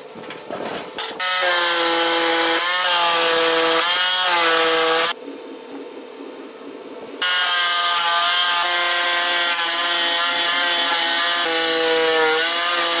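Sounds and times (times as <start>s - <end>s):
jigsaw cutting wood: 1.2s - 5.2s, 7.2s - 13.0s.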